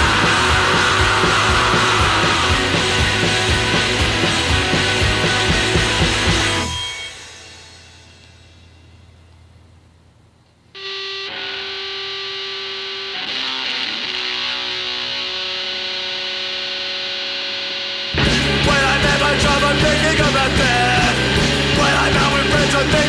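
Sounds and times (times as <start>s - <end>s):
punk rock band with drums: 0.0s - 8.5s, 10.8s - 23.0s.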